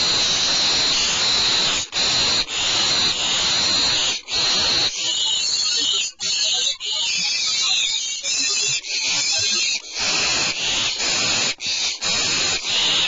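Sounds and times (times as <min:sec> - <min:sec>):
owls hissing: 0:00.0 - 0:13.0.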